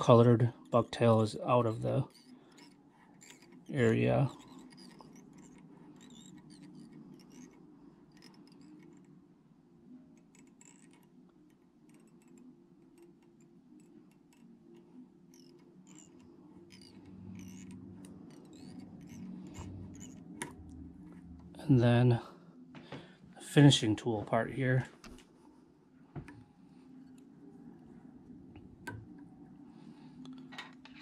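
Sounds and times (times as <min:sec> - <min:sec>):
thread handling ticks and rubs: 0:00.0 - 0:09.2, 0:10.2 - 0:21.6
low steady hum: 0:00.0 - 0:31.0.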